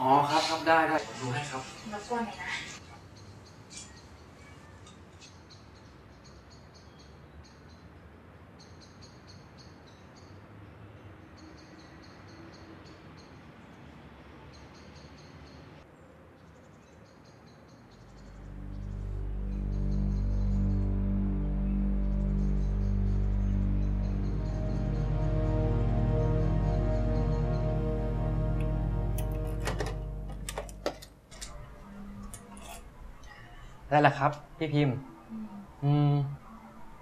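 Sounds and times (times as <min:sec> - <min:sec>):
deep low music drone: 0:17.9 - 0:33.3.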